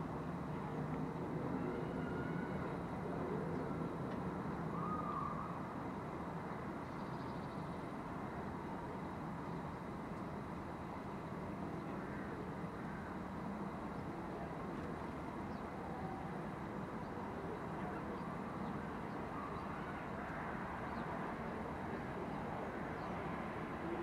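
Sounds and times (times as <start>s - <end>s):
distant traffic hum: 0.0s - 24.0s.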